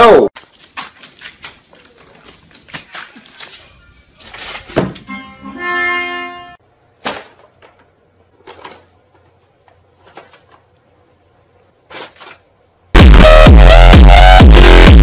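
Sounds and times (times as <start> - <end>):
paper bag crinkling: 7.0 - 10.7, 11.8 - 12.5
electronic dance music: 13.0 - 15.0.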